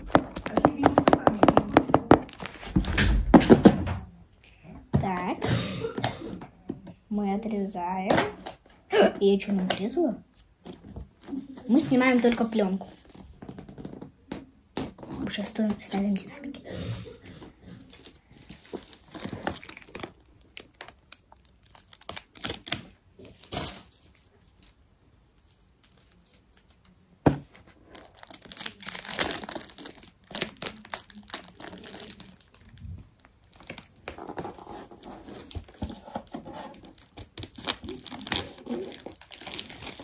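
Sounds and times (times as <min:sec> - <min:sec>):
plastic film crinkling and tearing: 0:00.0 - 0:03.7, 0:11.2 - 0:14.0, 0:17.8 - 0:24.8, 0:27.6 - 0:40.0.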